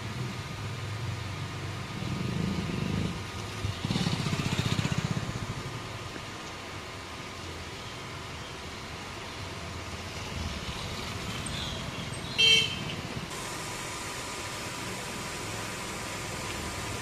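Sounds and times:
vehicle horn toot: 0:12.4 - 0:13.0
spray gun hissing water: 0:13.3 - 0:17.0
sprayer engine running: 0:13.3 - 0:17.0.

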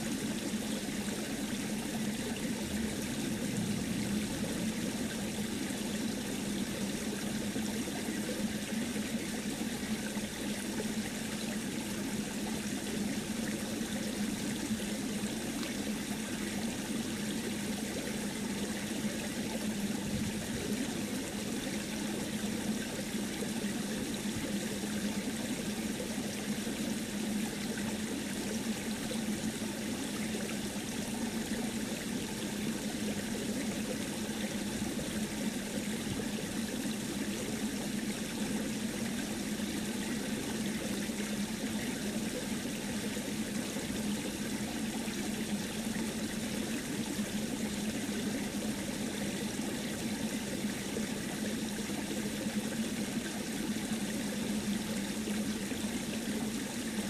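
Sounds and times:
low hum: 0:02.7 - 0:05.9.

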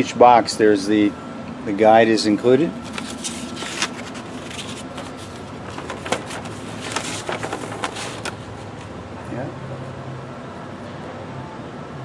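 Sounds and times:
air conditioner unit running: 0:00.0 - 0:12.0
paper rustling: 0:02.8 - 0:09.0.

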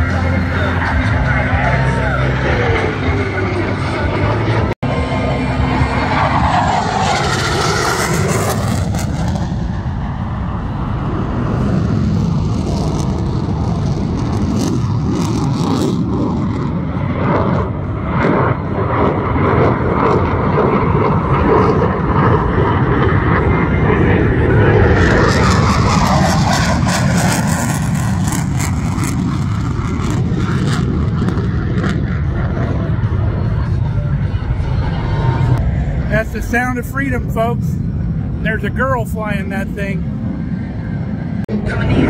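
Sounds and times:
fighter jet engine roar: 0:00.0 - 0:42.0
jet whoosh: 0:04.9 - 0:42.0.

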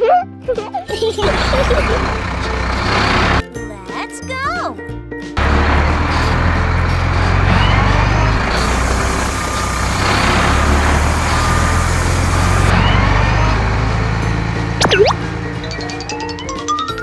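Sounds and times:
heavy vehicle engine running: 0:01.1 - 0:03.5, 0:05.4 - 0:16.2
hiss: 0:08.6 - 0:12.7.

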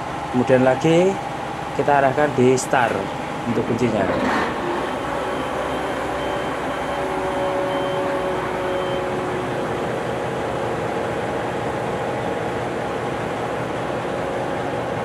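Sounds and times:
diesel engine idling: 0:00.0 - 0:15.0
faint high-pitched beep: 0:05.0 - 0:07.0.

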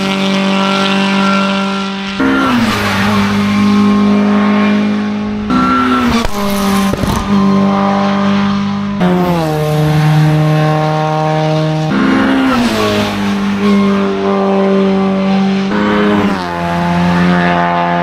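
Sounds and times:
race car engine revving: 0:00.0 - 0:18.0
exhaust cracks: 0:06.1 - 0:07.5.

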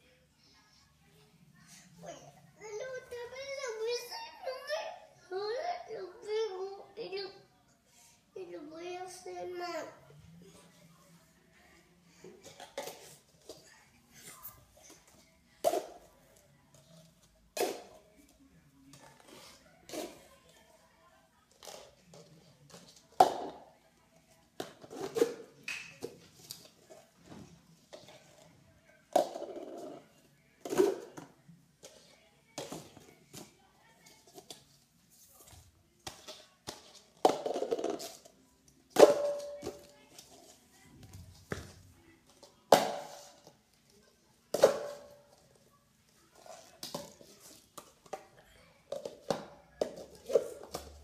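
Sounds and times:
cups clacking: 0:39.0 - 0:39.8.

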